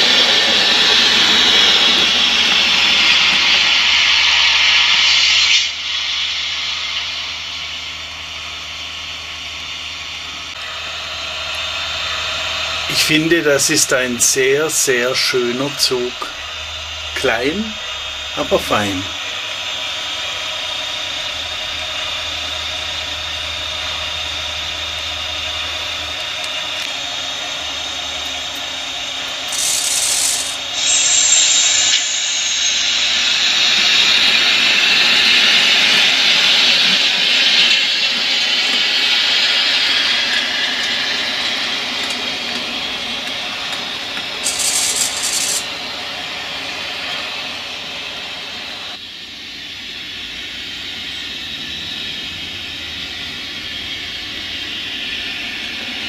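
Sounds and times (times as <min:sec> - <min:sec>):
model train rolling hum and whine: 0:00.0 - 0:56.0
short hiss bursts: 0:29.5 - 0:32.8.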